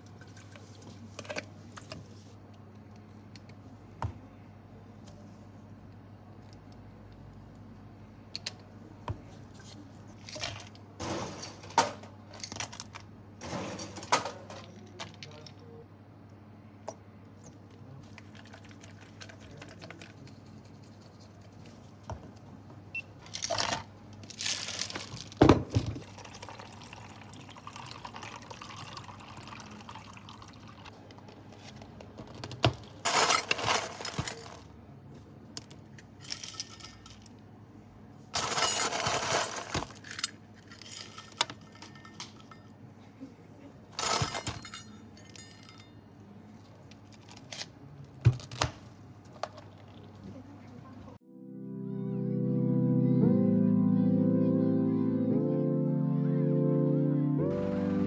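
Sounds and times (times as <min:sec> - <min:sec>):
tea pouring into plastic cups: 0:18.2 - 0:20.2, 0:26.0 - 0:30.9.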